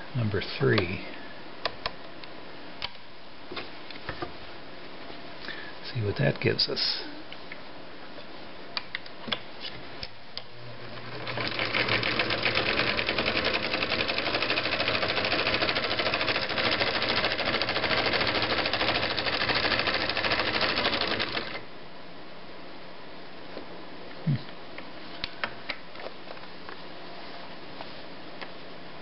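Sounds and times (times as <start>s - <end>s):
sewing machine sewing: 10.8s - 21.6s.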